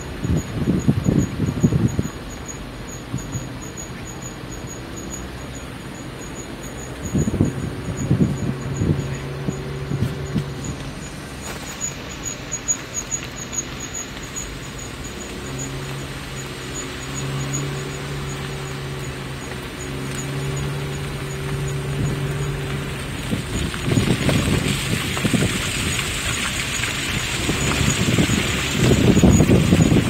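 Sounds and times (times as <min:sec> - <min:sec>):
car engine humming: 0:00.0 - 0:30.0
road noise: 0:00.0 - 0:30.0.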